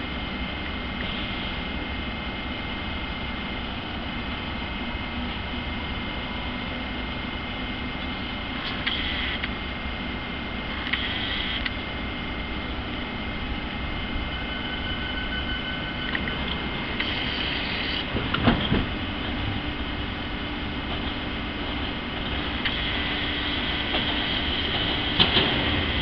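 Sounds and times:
train wheels rumbling on rail: 0.0 - 26.0
thin squeal: 14.3 - 16.1.

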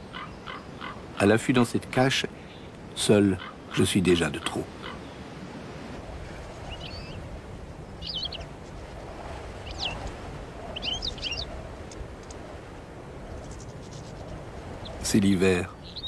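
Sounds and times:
bird chirping: 3.3 - 5.2, 6.7 - 7.2, 8.0 - 8.5, 10.8 - 11.5, 15.7 - 16.0.

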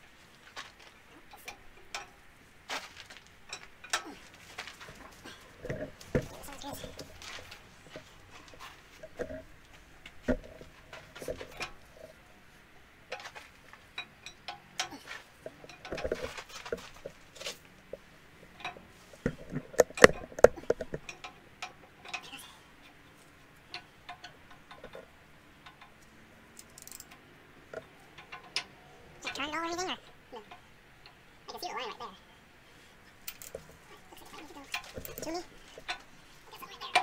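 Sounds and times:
metal tools clinking and knocking: 2.9 - 9.4, 33.2 - 37.0.

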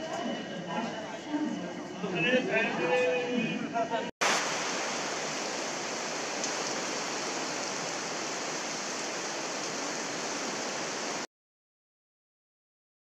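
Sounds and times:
rain falling on paving: 4.2 - 11.3.

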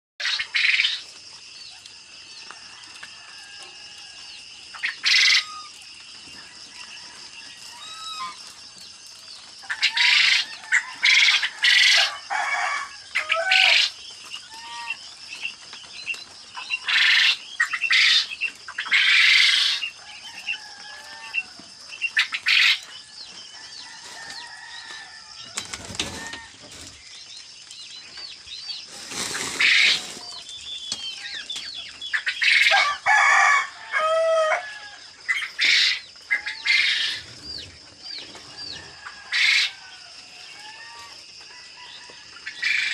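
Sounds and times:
quail chirping: 0.2 - 1.8, 4.7 - 12.2, 13.1 - 23.3, 25.4 - 33.0, 35.3 - 41.2, 42.4 - 42.9
wings fluttering in wire cages: 23.6 - 27.0.

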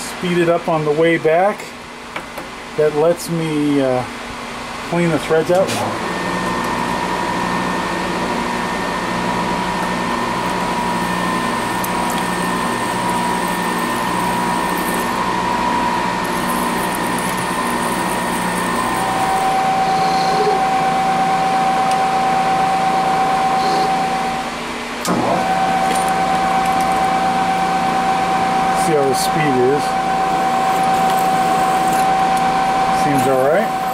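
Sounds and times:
spindle motor whine: 5.5 - 33.9
drill cutting steel: 10.0 - 22.0, 28.7 - 33.9.

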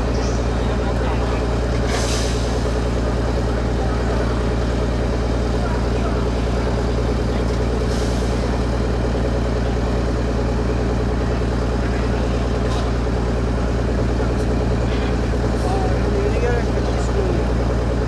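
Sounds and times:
diesel engine idling: 0.0 - 18.0.

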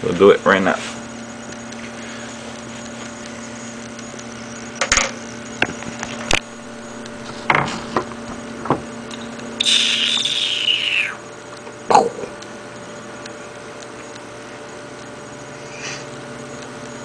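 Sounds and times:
steady low hum: 0.0 - 17.0
sharp clicks and knocks: 7.4 - 9.3
high sliding tone: 9.6 - 11.3.

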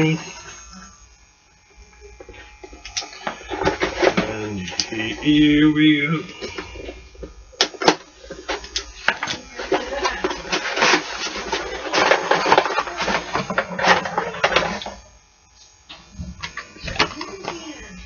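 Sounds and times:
packaging crinkling and rustling: 7.7 - 15.0.

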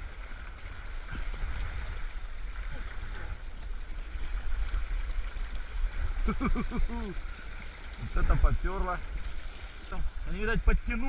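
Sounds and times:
low rumble of water: 0.0 - 11.0
river water rushing and splashing: 0.0 - 11.0.

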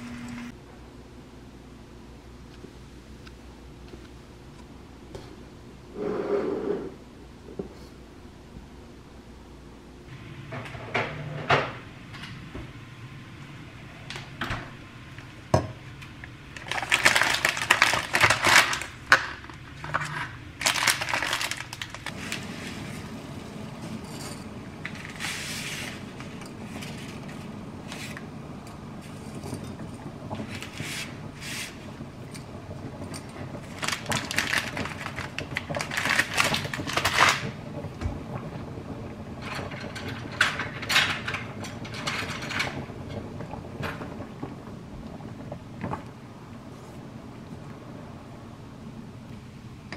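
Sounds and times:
plastic packet crinkling: 16.6 - 19.0, 20.6 - 22.2, 33.7 - 37.5
dry pasta rattling against pot: 19.8 - 22.1, 33.1 - 37.6.

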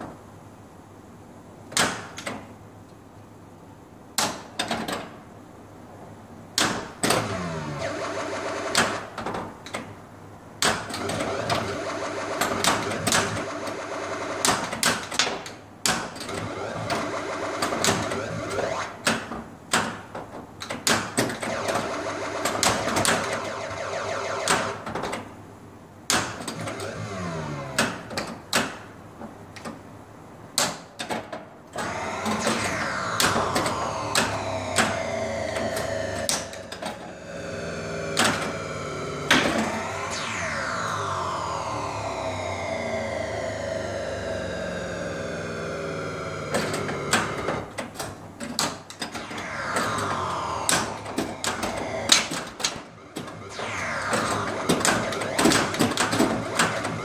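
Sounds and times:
electronic sound effects: 7.0 - 9.2, 10.7 - 15.1, 16.2 - 19.2, 21.3 - 25.2, 26.4 - 28.1, 31.8 - 47.8, 49.0 - 57.0
pop bumpers and solenoids: 10.6 - 15.1, 15.9 - 19.3, 21.3 - 25.3, 31.8 - 47.9, 49.0 - 57.0.

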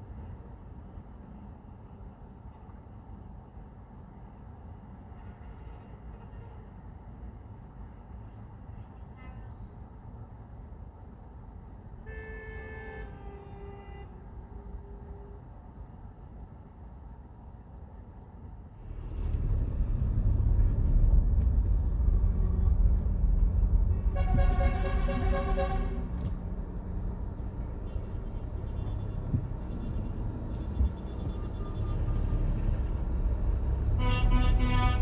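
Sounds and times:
engine and road rumble: 0.0 - 35.0
truck horn: 12.0 - 15.4, 23.9 - 26.3, 27.8 - 32.8, 33.8 - 35.0.

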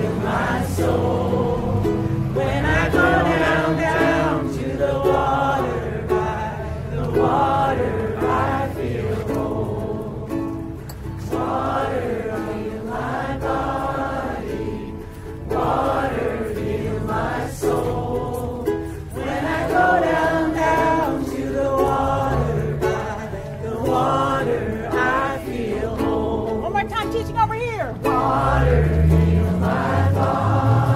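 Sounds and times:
group of voices singing: 0.0 - 30.9
strummed string instrument: 0.0 - 30.9.

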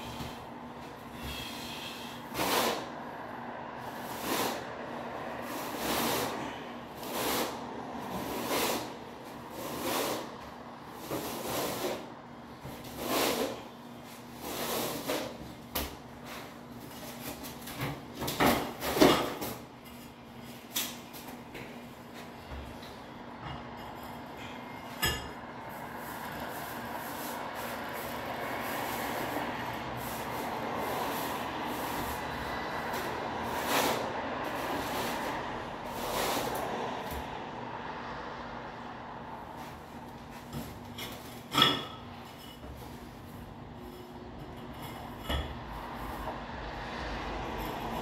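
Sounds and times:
trowel scraping mortar on concrete: 2.3 - 2.9, 4.0 - 4.7, 5.4 - 10.4, 11.0 - 12.1, 12.8 - 13.7, 14.4 - 15.5, 26.0 - 36.7.

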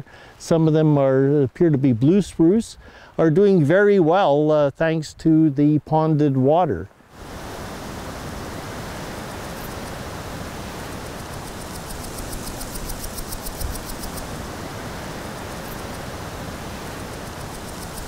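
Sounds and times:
fast high-pitched ticking: 11.2 - 14.3.

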